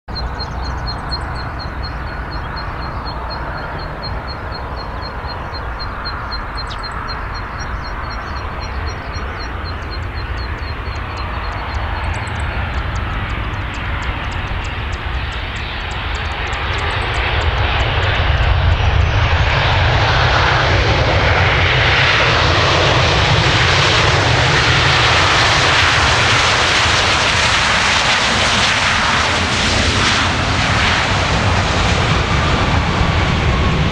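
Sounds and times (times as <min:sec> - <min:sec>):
faint high chirping: 0:00.1 - 0:18.4
jet airliner rumble: 0:00.1 - 0:33.9
jet reverse thrust roar: 0:00.1 - 0:33.9.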